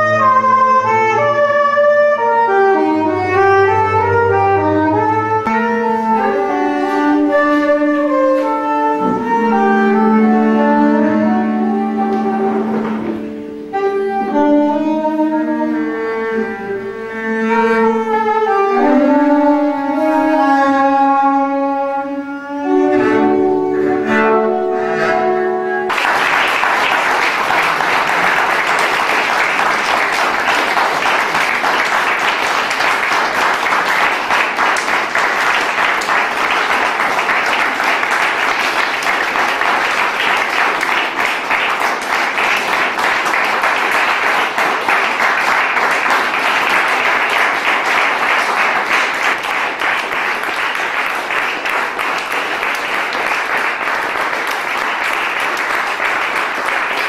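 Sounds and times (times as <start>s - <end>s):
bowed double bass: 0.0s - 25.9s
saxophone: 0.0s - 26.0s
audience applauding: 25.8s - 57.0s.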